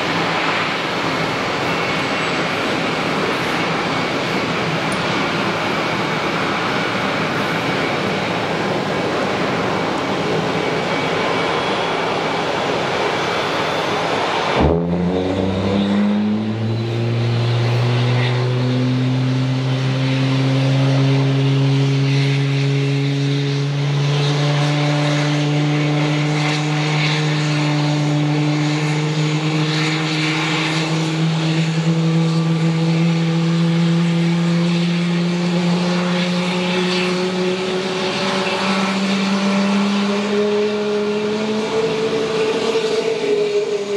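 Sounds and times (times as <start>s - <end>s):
jet engine spooling up: 0.0s - 43.9s
rushing noise: 7.6s - 19.5s.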